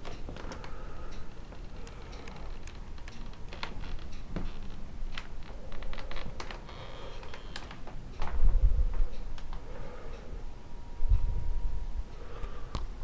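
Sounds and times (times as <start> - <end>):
steady low hum: 0.0 - 13.0
light clicks and taps: 1.4 - 8.4.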